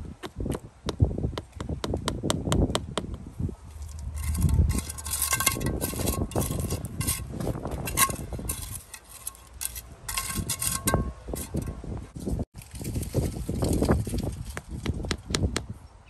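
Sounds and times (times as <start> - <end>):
trowel scraping through grit: 3.7 - 12.0.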